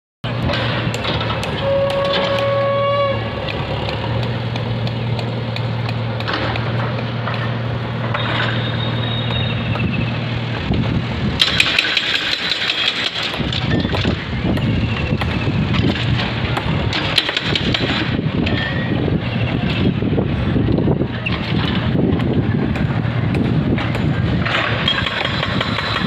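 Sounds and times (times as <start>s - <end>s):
engine idling: 0.2s - 26.0s
wind on microphone: 9.5s - 11.6s, 13.2s - 26.0s.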